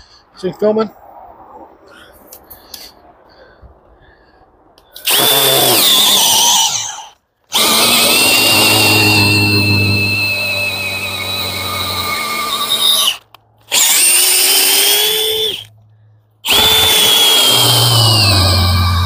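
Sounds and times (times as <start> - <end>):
cordless drill boring into wood: 5.0 - 15.7, 16.4 - 19.0.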